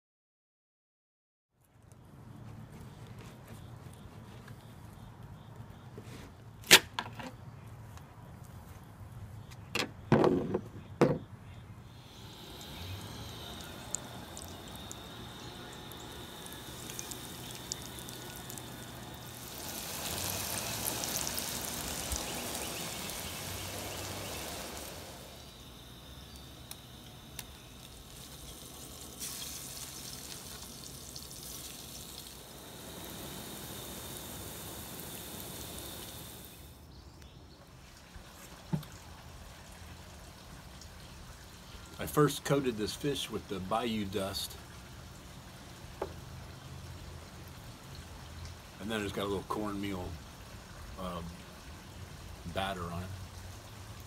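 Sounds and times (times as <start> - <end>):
fish frying in hot oil: 11.9 - 36.8, 38.0 - 54.0.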